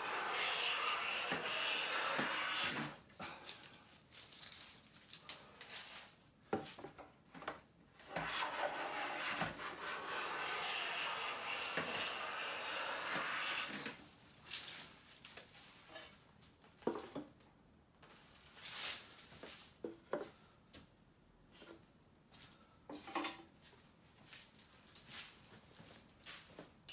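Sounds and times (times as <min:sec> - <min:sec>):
hand plane cutting wood: 0:00.0 - 0:03.0, 0:08.0 - 0:14.0.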